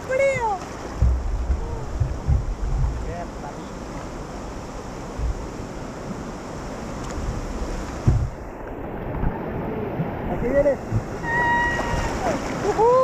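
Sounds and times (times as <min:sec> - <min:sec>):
river current rushing and splashing: 0:00.0 - 0:13.0
wind buffeting microphone: 0:00.0 - 0:13.0
thump: 0:01.0 - 0:03.0, 0:08.0 - 0:08.4.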